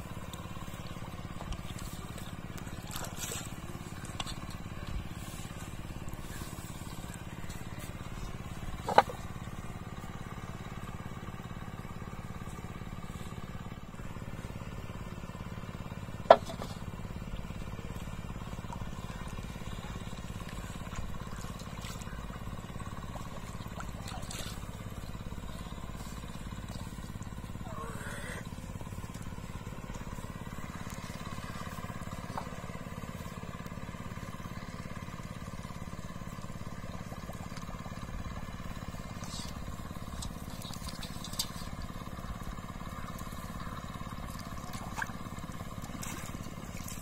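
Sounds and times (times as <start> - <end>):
steady low rumble: 0.0 - 15.0, 15.8 - 34.0
hollow bamboo knocks: 8.8 - 9.2, 16.3 - 16.7.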